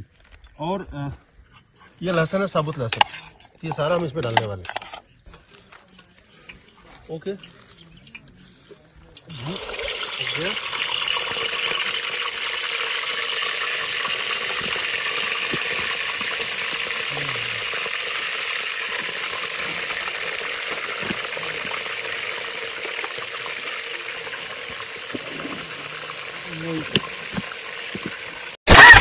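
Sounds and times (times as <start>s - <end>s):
meat sizzling in hot oil: 9.3s - 29.0s.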